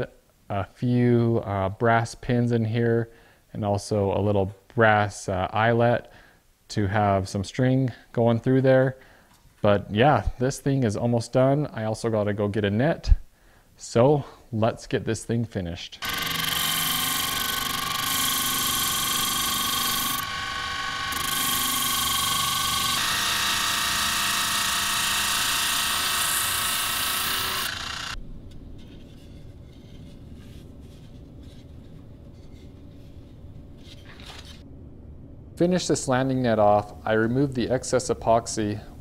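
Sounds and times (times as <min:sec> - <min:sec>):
drill press motor whine: 0:16.0 - 0:28.2
sanding drum grinding wood: 0:16.0 - 0:28.2.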